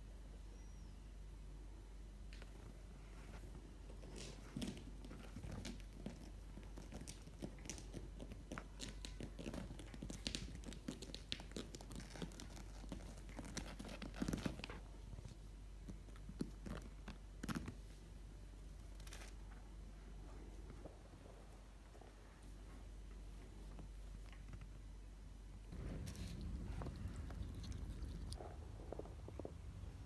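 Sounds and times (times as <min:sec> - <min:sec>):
kitten claws scratching fabric: 0:04.0 - 0:14.9, 0:25.7 - 0:28.5.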